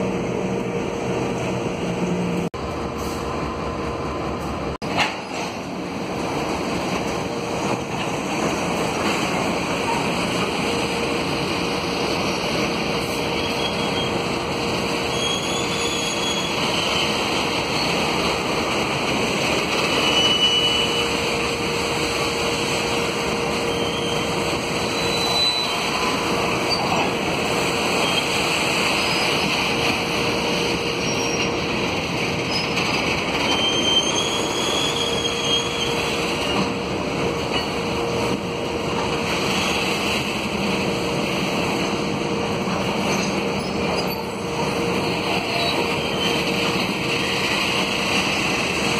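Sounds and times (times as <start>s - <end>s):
train wheels rumbling on rail: 0.0s - 48.9s
high-pitched wheel squeals: 13.2s - 14.3s, 15.0s - 18.1s, 19.9s - 21.2s, 23.7s - 27.1s, 30.9s - 31.6s, 32.5s - 36.6s.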